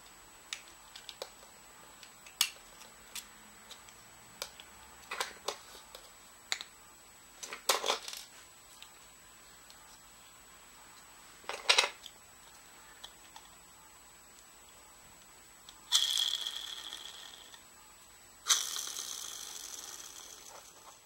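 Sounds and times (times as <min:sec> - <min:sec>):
plastic parts clattering: 0:07.4 - 0:08.3, 0:11.4 - 0:12.1.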